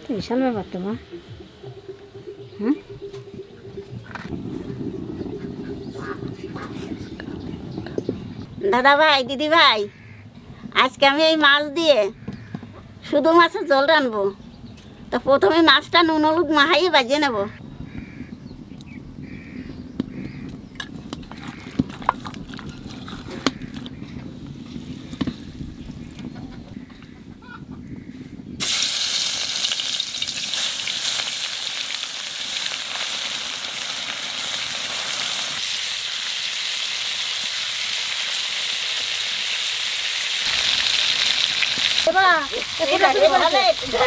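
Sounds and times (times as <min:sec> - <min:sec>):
fish frying in hot oil: 0:28.6 - 0:44.0
fish mixed by hand in pot: 0:28.6 - 0:44.0.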